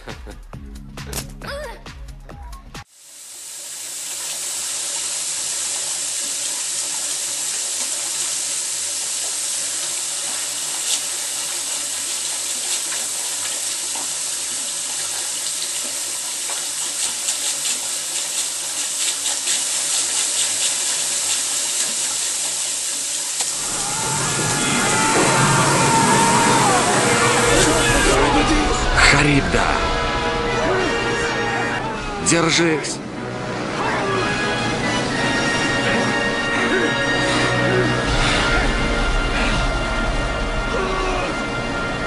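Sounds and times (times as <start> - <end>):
tap water running into bathtub: 3.2 - 24.0
water splashing: 3.6 - 31.1.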